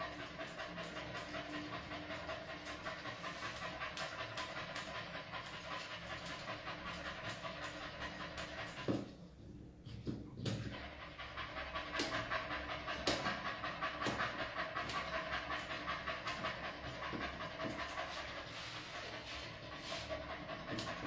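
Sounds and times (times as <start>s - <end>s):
dog panting: 0.0s - 21.0s.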